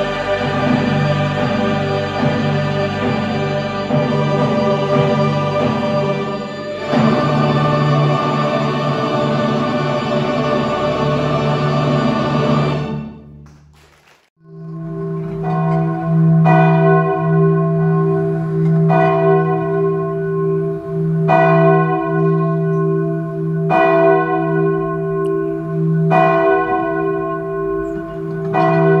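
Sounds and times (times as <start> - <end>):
large bell tolling: 14.4 - 29.0.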